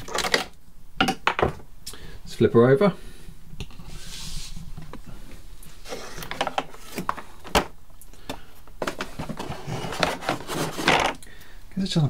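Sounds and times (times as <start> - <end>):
soft rubbing: 3.8 - 6.9.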